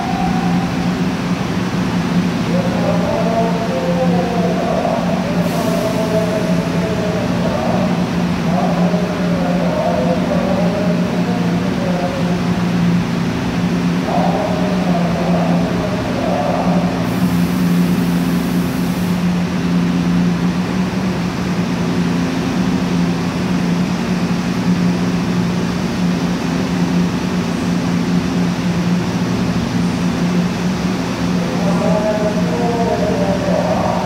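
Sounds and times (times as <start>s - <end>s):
wavering tone: 0.0s - 1.3s
train equipment humming: 0.0s - 34.0s.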